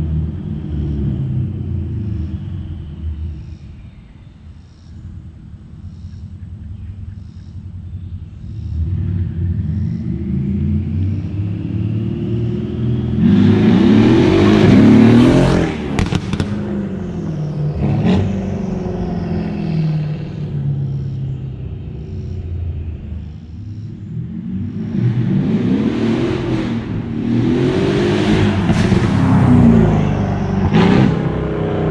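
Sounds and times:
car engine accelerating hard: 0:00.0 - 0:03.6, 0:08.4 - 0:31.9
exhaust cracks: 0:14.6 - 0:17.0, 0:28.3 - 0:31.9.

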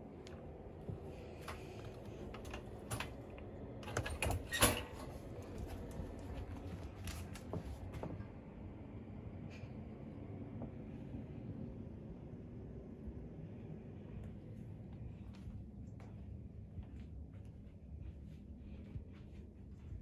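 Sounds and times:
crate wire door rattling: 0:03.8 - 0:05.3.

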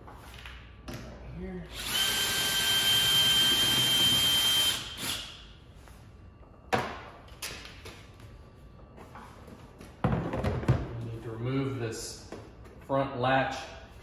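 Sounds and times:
cordless drill whining: 0:01.7 - 0:05.3.

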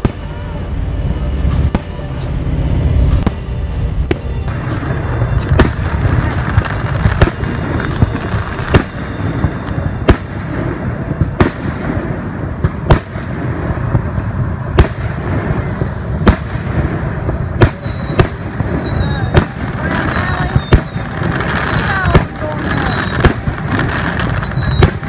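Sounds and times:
fireworks bursting with sharp bangs: 0:00.0 - 0:25.0
low rumble and crackle: 0:00.0 - 0:25.0
faint falling whistles: 0:15.8 - 0:25.0.

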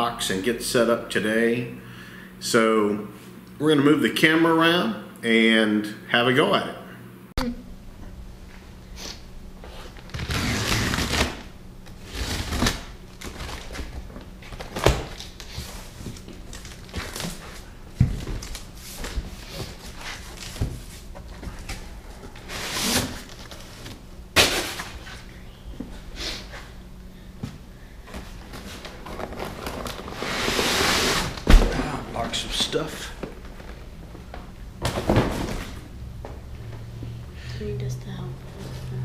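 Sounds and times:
plastic wrap rustling: 0:09.7 - 0:25.1, 0:28.2 - 0:34.1
cardboard flaps opening: 0:09.9 - 0:25.0, 0:28.2 - 0:33.9.

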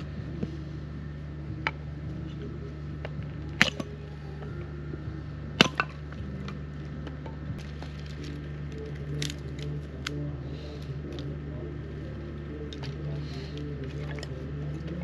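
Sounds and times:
generator humming: 0:00.0 - 0:15.0
hatchet chopping wood: 0:03.0 - 0:04.0, 0:05.5 - 0:07.7.

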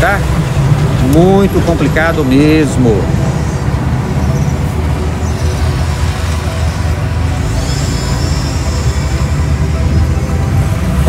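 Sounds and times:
heavy vehicle engine running: 0:00.0 - 0:11.0
road traffic: 0:00.0 - 0:11.0
faint high whine: 0:02.9 - 0:11.0.

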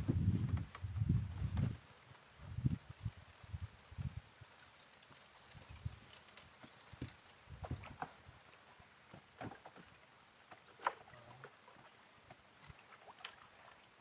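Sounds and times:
water lapping at hull: 0:04.6 - 0:14.0
wooden boat knocks and clicks: 0:06.6 - 0:08.2, 0:09.1 - 0:12.8.

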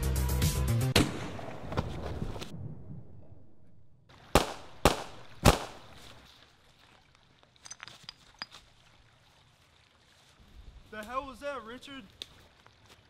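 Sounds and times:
rifle shots: 0:04.3 - 0:05.9.

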